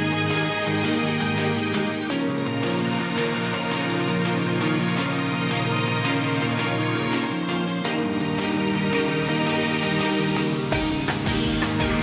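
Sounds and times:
music of sustained tones: 0:00.0 - 0:12.0
deep bass beat: 0:10.7 - 0:12.0.

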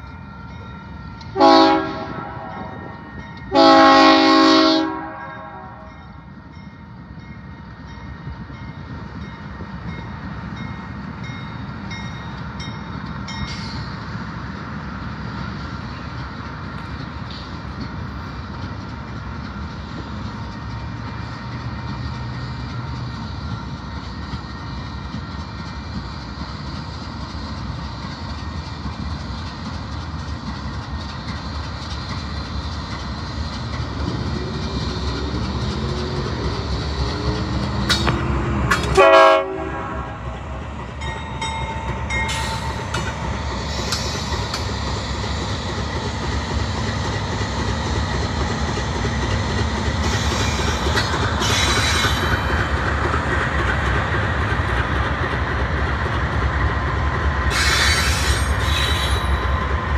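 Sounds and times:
diesel locomotive engine rumble: 0:00.0 - 0:59.9
train horn blast: 0:01.3 - 0:06.0, 0:38.8 - 0:40.6
train wheels rolling: 0:05.8 - 0:59.9.

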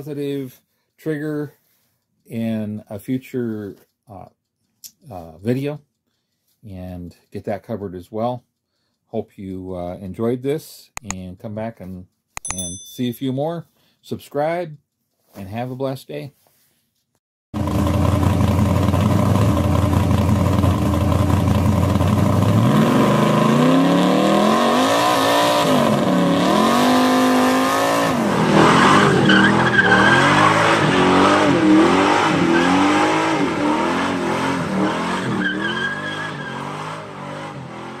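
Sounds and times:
car engine revving: 0:17.6 - 0:38.0
tyre squeal: 0:28.5 - 0:31.5, 0:35.0 - 0:36.9.

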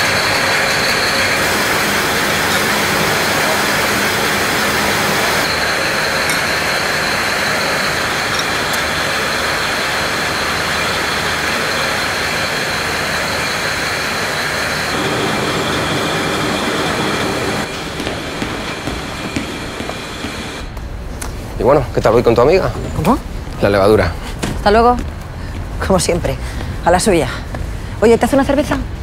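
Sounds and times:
conveyor of glass bottles: 0:00.0 - 0:18.1
high steady whine: 0:00.0 - 0:21.6.

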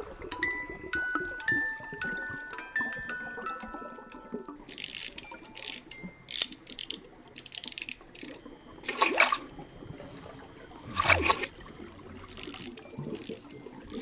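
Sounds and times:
gulping splashes: 0:07.0 - 0:14.0.

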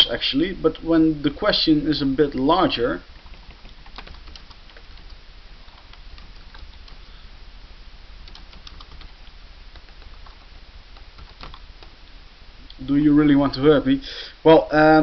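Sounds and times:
steady low hum: 0:00.0 - 0:15.0
keyboard key clicks: 0:03.2 - 0:07.0.

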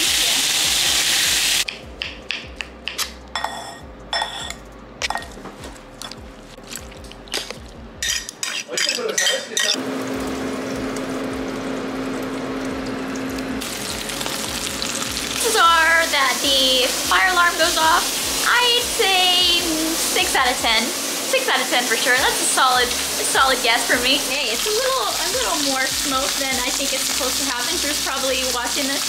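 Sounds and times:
steak sizzling in a grill pan: 0:00.0 - 0:01.7, 0:10.0 - 0:29.0
metal fork clinking glass bowl: 0:03.4 - 0:05.3
steady hum: 0:03.8 - 0:08.0.

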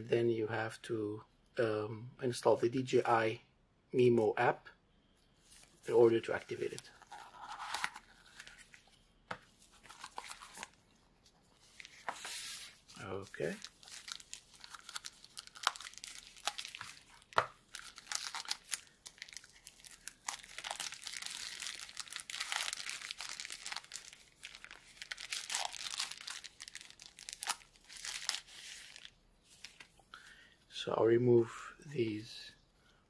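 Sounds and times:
packaging rustling: 0:05.6 - 0:30.0.

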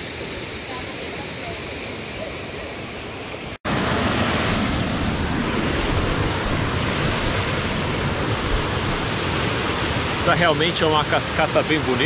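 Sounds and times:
waterfall rushing over rocks: 0:00.0 - 0:12.0
wind on microphone: 0:03.8 - 0:10.2.

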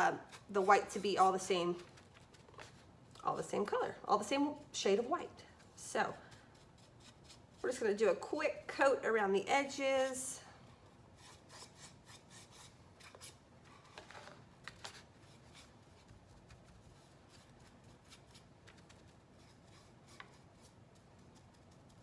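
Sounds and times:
paintbrush strokes: 0:15.2 - 0:22.0.

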